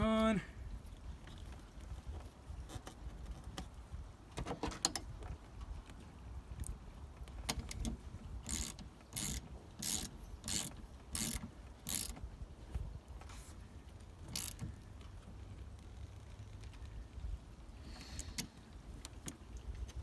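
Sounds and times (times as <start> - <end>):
ratchet wrench clicking: 8.5 - 12.2, 14.3 - 14.6.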